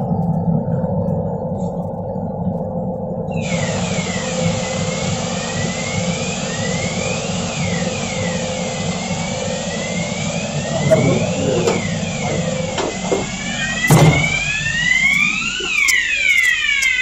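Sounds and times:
faint hum: 0.0s - 17.0s
steady rumble: 0.0s - 17.0s
hiss: 3.3s - 15.8s
sweeping alarm tone: 3.3s - 17.0s.

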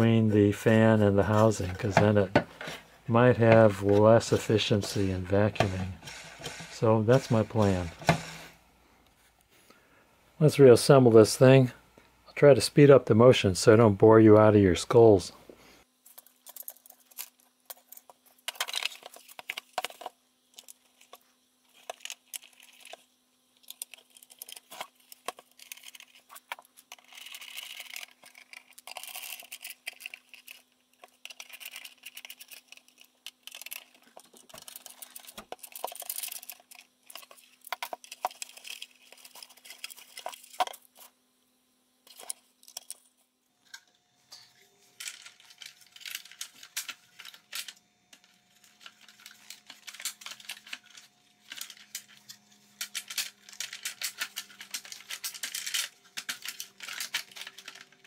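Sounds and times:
faint steady hum: 0.0s - 58.0s
plastic parts clicking and rattling: 16.0s - 41.1s, 42.0s - 58.0s.

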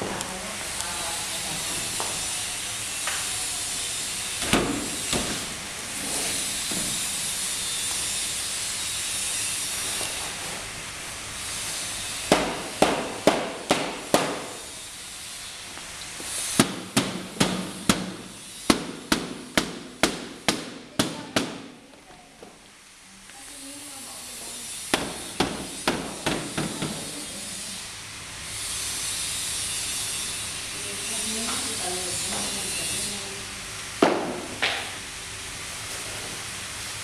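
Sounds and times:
hammer blows on bamboo: 12.2s - 14.9s, 16.4s - 21.8s, 24.9s - 27.1s.

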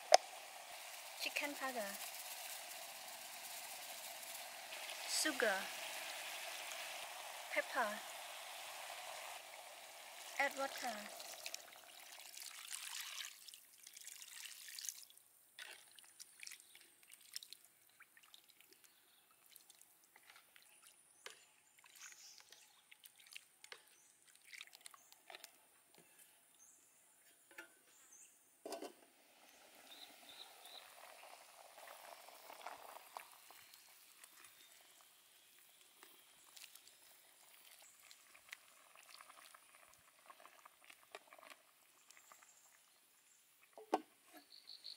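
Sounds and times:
water pouring into a wok: 0.0s - 19.9s, 24.2s - 25.4s, 29.2s - 43.8s
liquid trickling and dripping: 8.2s - 25.6s, 29.5s - 44.1s.

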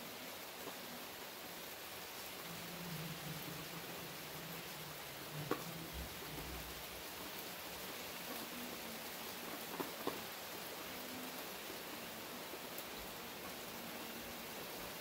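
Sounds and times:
rain hissing: 0.0s - 15.0s.

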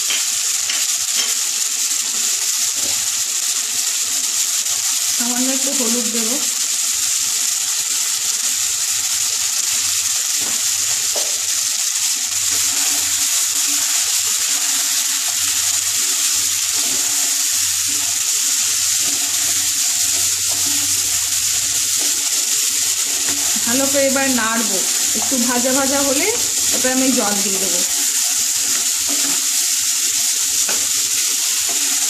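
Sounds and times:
vegetables sizzling in oil: 0.0s - 32.0s
wooden spatula stirring: 12.4s - 24.0s.

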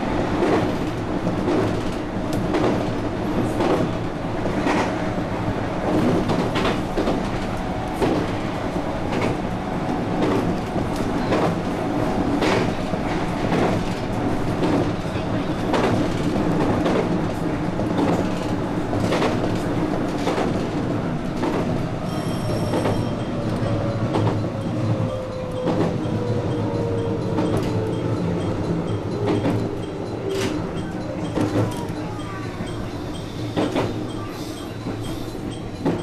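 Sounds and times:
train wheels rumbling on rails: 0.0s - 36.0s
clacks over rail joints: 10.1s - 21.8s, 34.8s - 36.0s.

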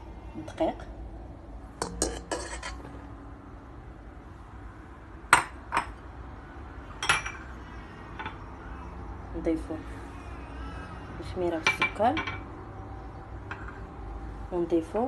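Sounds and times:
cup clinking against metal bowl: 1.8s - 2.8s, 7.0s - 7.5s.

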